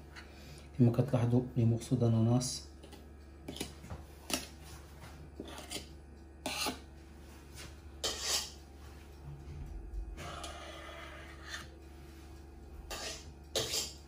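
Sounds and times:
metal spatula scraping in tin: 5.4 - 6.8, 8.0 - 8.6, 12.9 - 14.0.

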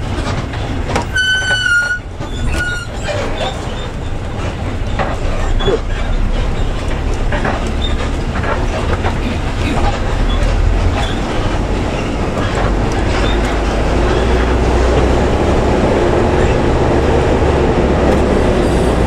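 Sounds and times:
bus body rattling: 0.0 - 19.0
bus engine rumbling: 0.0 - 19.0.

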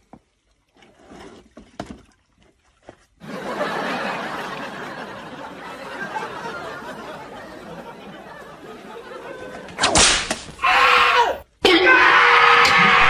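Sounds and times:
group laughter: 3.2 - 9.9.

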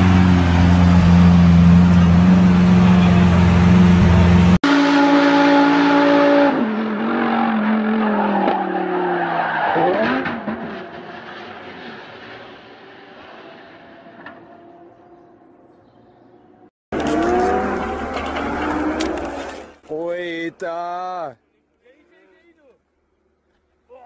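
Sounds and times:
race car engine: 0.0 - 15.7, 16.9 - 19.8
tyres skidding: 0.0 - 21.0.

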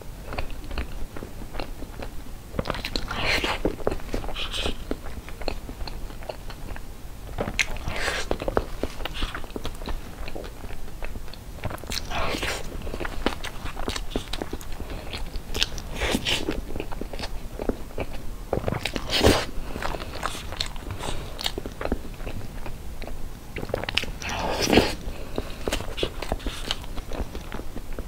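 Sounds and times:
wet chewing: 0.3 - 28.0.

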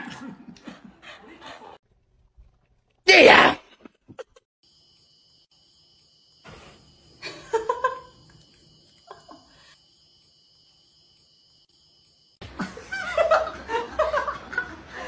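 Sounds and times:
laughter: 0.0 - 1.8, 4.0 - 4.4, 7.2 - 8.3, 9.0 - 9.7, 12.4 - 15.0.

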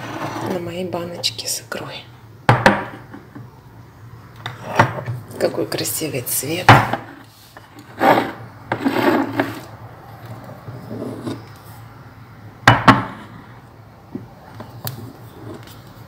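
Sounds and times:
glass rubbing on surface: 0.0 - 0.8, 7.6 - 9.7, 10.8 - 11.4
glass jars knocking on countertop: 2.5 - 3.0, 12.7 - 13.2.

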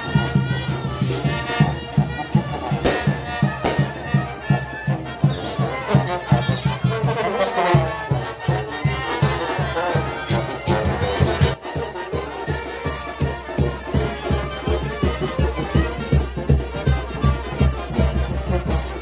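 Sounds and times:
bass drum beat: 0.0 - 6.4
brass band playing: 0.0 - 19.0
tuba: 0.0 - 19.0.

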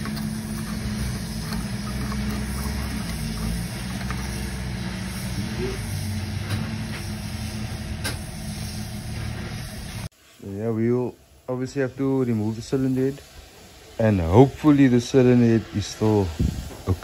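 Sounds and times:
low mechanical drone: 0.0 - 10.1.

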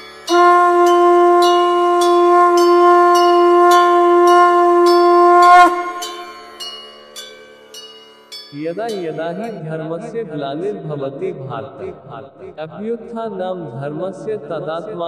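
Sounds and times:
conch shell blown: 0.0 - 6.6
bells ringing: 0.0 - 9.6.

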